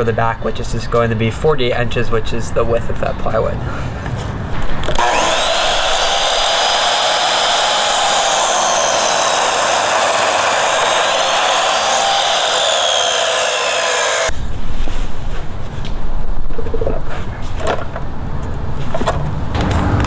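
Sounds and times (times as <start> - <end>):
miter saw cutting wood: 4.6 - 14.3.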